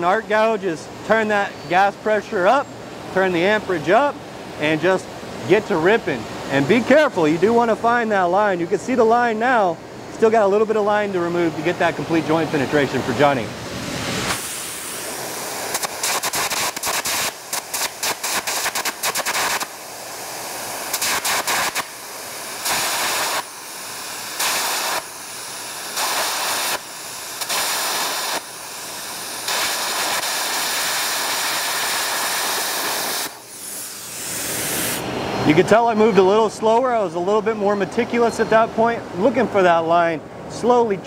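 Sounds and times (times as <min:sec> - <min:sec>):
compressed air jet hissing: 0:13.8 - 0:35.1
electric arc crackling: 0:14.2 - 0:35.0.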